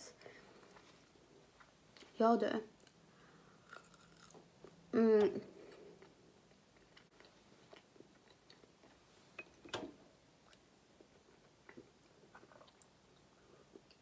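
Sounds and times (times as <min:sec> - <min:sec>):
woman humming hmm: 0:04.9 - 0:05.5
chewing with mouth clicks: 0:11.4 - 0:14.0.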